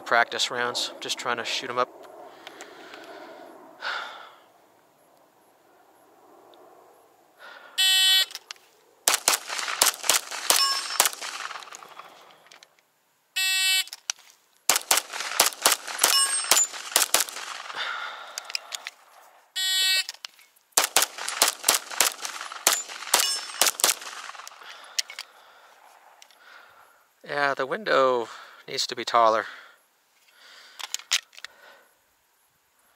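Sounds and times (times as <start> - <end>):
rapid pistol fire: 9.1 - 12.2, 14.7 - 18.3, 20.8 - 24.8
steel targets clanging: 9.5 - 12.2, 15.1 - 17.8, 21.2 - 24.4.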